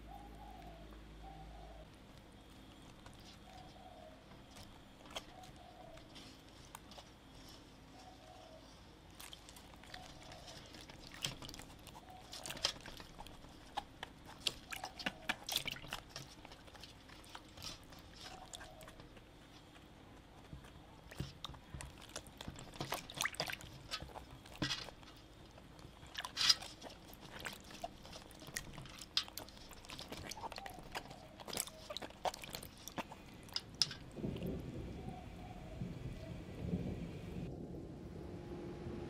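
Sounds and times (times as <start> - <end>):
cabbage leaves rubbing and creaking: 1.4 - 35.8
water splashing in basin: 9.2 - 19.0, 21.0 - 34.6.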